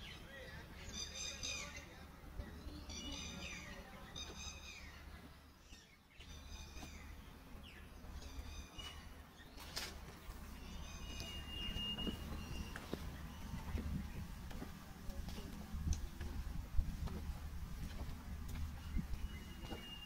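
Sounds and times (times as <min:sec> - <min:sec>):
low steady rumble: 0:10.2 - 0:19.9
bird calling: 0:10.5 - 0:14.3, 0:18.8 - 0:20.0
whistled bird note: 0:11.0 - 0:12.7.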